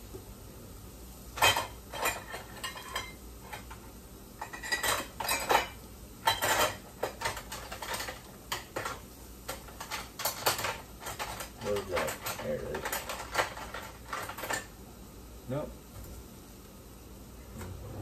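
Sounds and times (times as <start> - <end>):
metal utensils clinking in drawer: 1.4 - 3.7, 4.4 - 14.7.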